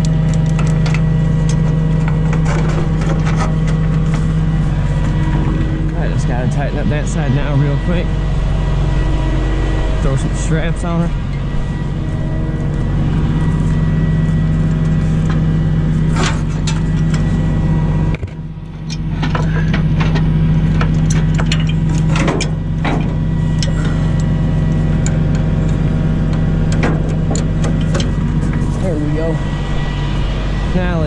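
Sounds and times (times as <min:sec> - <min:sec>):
tow chain clinking: 0:00.0 - 0:05.4
truck engine idling: 0:00.0 - 0:31.0.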